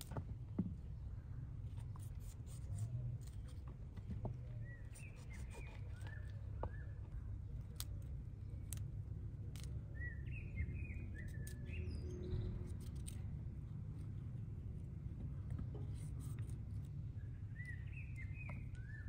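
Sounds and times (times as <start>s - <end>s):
steady low rumble: 0.0s - 19.0s
small birds chirping: 0.8s - 19.0s
knife cutting cauliflower: 4.9s - 6.3s.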